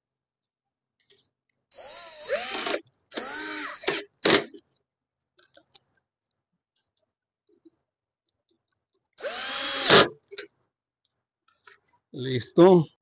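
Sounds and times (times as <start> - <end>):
cordless drill whining: 1.7 - 4.6, 9.2 - 10.2.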